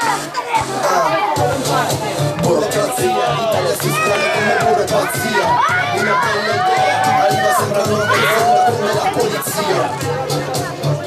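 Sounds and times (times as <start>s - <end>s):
crowd shouting and cheering: 0.0s - 11.0s.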